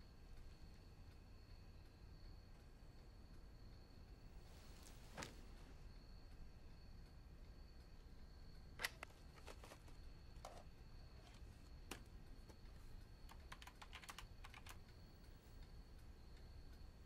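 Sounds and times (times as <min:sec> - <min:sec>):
faint steady high tone: 0:00.0 - 0:17.0
laptop keyboard typing: 0:08.6 - 0:17.0.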